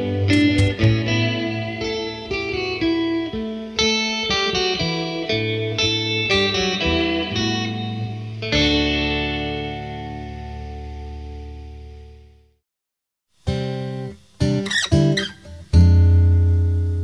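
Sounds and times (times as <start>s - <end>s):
plucked guitar music: 0.0s - 12.2s, 13.4s - 17.0s.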